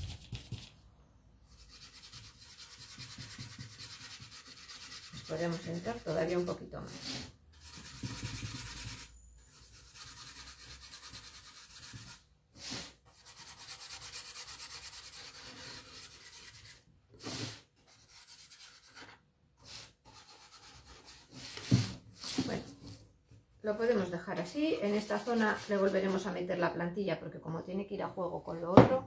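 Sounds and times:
paintbrush scrubbing on wood: 1.6s - 19.0s, 24.8s - 26.2s.

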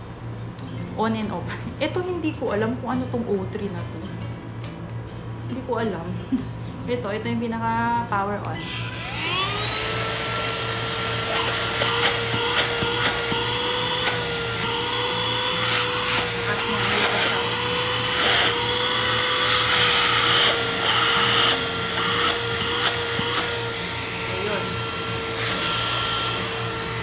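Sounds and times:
handheld vacuum motor whine: 8.4s - 27.0s.

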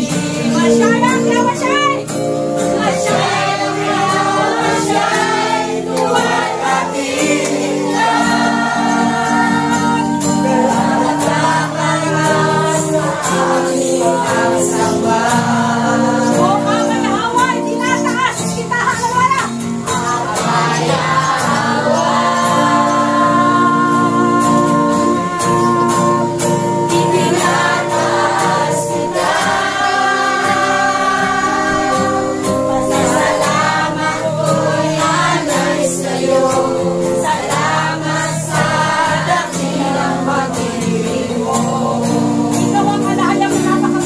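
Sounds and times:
congregation singing: 0.0s - 44.0s.

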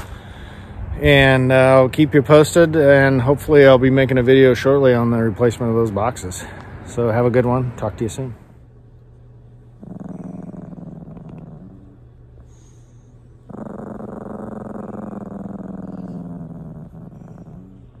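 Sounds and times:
small dog growling: 9.7s - 18.0s.

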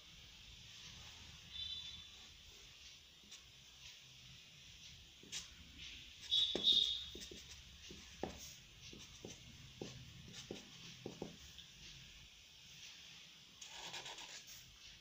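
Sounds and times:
marker scratching on paper: 5.2s - 11.4s, 13.6s - 14.6s
marker squeak: 6.2s - 7.6s.

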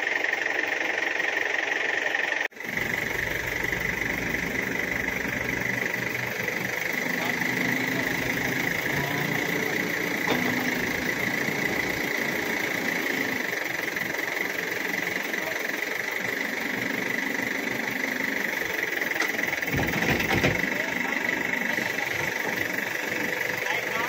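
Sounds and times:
diesel engine idling: 0.0s - 24.0s
high-pitched whine: 2.6s - 15.5s.

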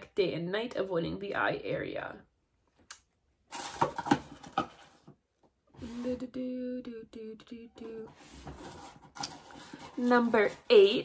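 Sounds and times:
woman humming: 5.8s - 8.2s.

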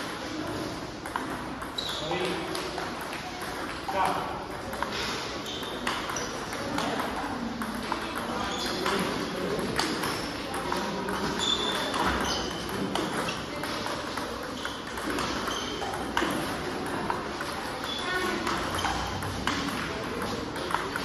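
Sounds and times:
table tennis ball clicks: 1.0s - 21.0s.

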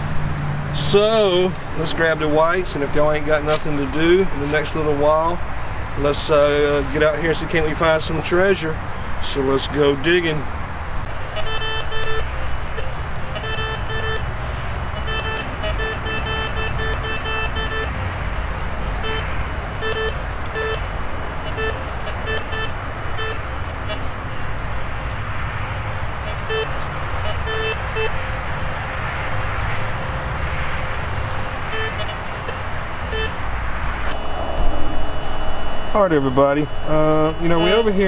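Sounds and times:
metal detector beeping: 11.4s - 24.4s, 26.2s - 28.7s, 30.8s - 33.4s, 34.0s - 38.0s
low rumble: 33.0s - 37.6s.

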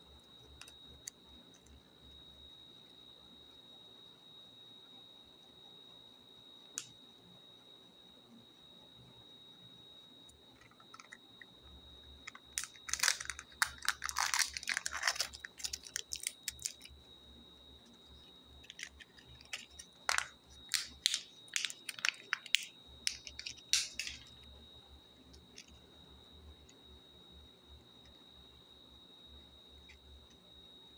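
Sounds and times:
plastic packaging crinkling and tearing: 12.2s - 16.9s, 18.6s - 24.4s.

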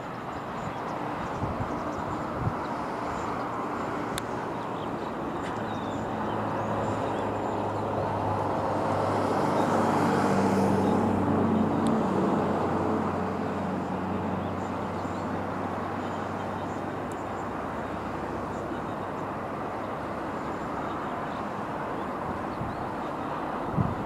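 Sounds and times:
sea noise: 0.0s - 24.0s
wind: 0.0s - 24.0s.

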